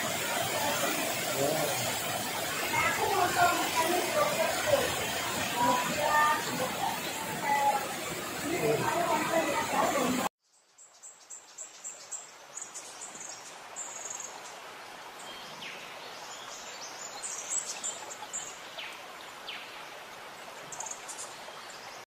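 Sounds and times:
rain hissing: 0.0 - 10.3.

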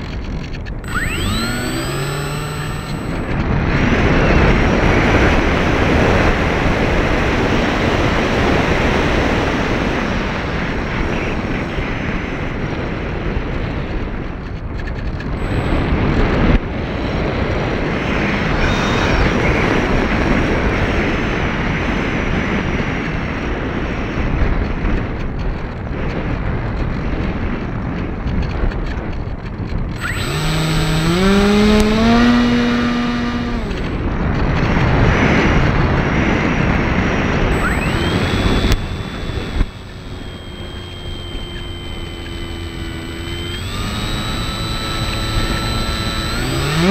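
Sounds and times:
electric motor whine: 0.0 - 11.9, 15.2 - 16.6, 18.0 - 20.8, 29.9 - 35.7, 37.1 - 46.9
wind rushing over microphone: 0.0 - 46.9.

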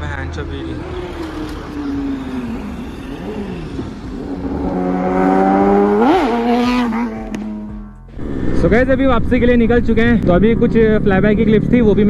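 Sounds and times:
motorcycle revving past: 0.7 - 8.8.

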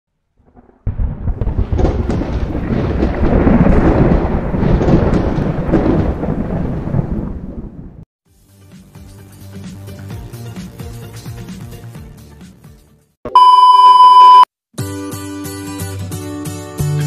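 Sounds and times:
thunder rumble with crackles: 0.4 - 8.0.

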